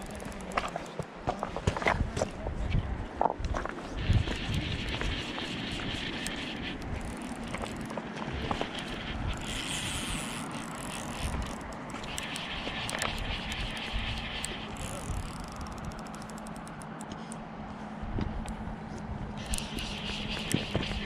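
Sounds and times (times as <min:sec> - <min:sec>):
fly reel clicker ratcheting: 0:00.0 - 0:00.9, 0:04.5 - 0:17.1, 0:19.4 - 0:20.6
wind rumble on microphone: 0:00.0 - 0:16.5, 0:17.6 - 0:21.0.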